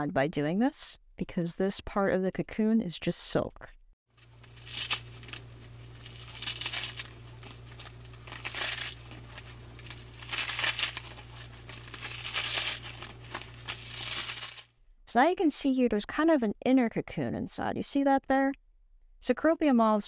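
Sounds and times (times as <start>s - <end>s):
steady low hum: 4.2s - 14.6s
cocoon silk tearing: 4.2s - 14.7s.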